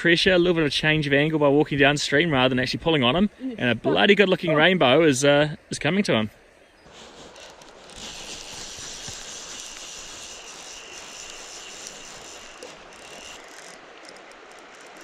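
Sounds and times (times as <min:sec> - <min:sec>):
stream water running over stones: 0:06.9 - 0:15.0.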